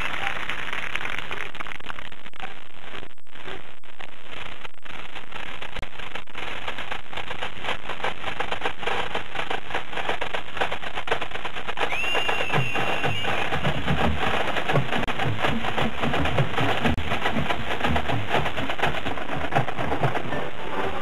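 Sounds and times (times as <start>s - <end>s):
stadium crowd applauding: 0.0s - 2.0s, 11.8s - 21.0s.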